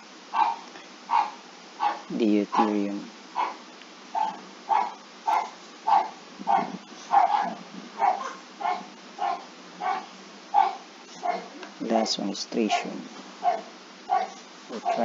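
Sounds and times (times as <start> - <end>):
dog barking: 0.3 - 2.8, 3.4 - 3.6, 4.2 - 11.6, 13.4 - 15.0.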